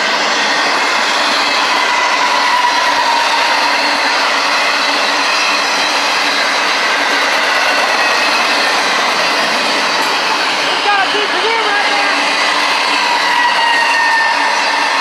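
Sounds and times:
freight train rumbling past: 0.0s - 15.0s
high whining tones: 0.0s - 15.0s.

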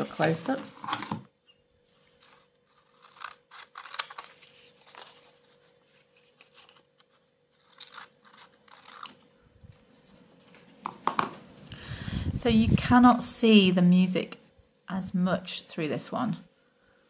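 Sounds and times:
paper rustling: 2.0s - 10.8s
scissors snipping paper: 2.2s - 5.3s, 5.9s - 9.2s.

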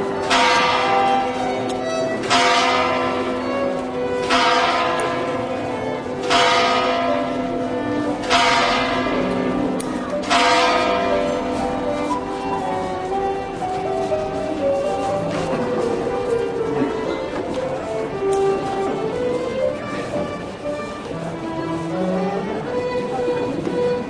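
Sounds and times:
violin holding long notes: 11.6s - 24.0s.

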